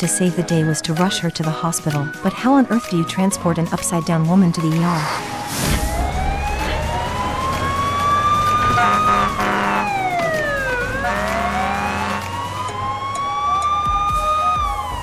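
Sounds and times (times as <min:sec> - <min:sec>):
fire engine siren wailing: 0:04.8 - 0:15.0.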